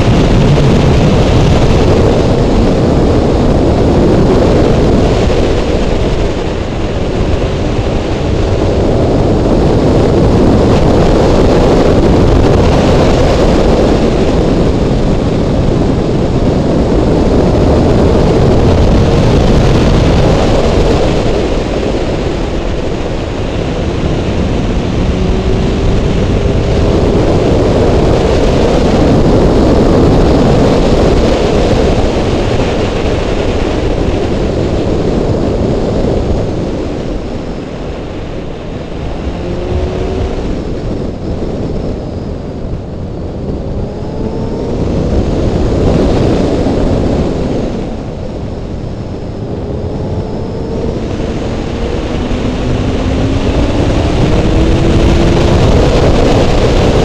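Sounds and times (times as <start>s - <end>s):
wind rushing over helmet: 0.0s - 57.0s
motorcycle engine revving: 17.0s - 35.4s, 38.5s - 57.0s.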